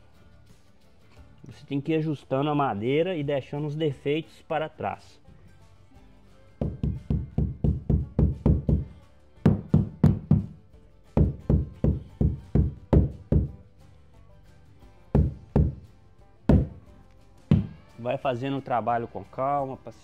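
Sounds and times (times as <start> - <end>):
background music: 0.0 - 20.0
knocking on wood flooring: 6.6 - 8.9, 9.5 - 10.6, 11.2 - 13.6, 15.2 - 15.8, 16.5 - 16.8, 17.5 - 17.8.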